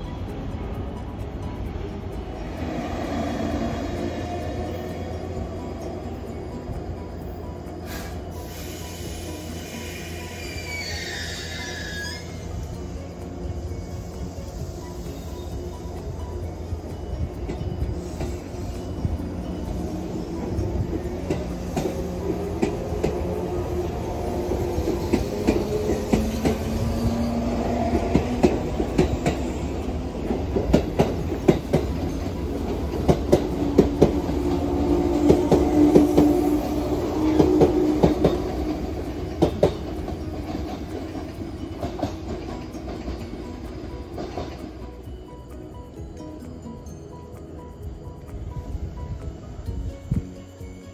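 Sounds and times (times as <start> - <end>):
train rumble: 0.0 - 50.9
train wheels clacking over rail joints: 17.2 - 45.0.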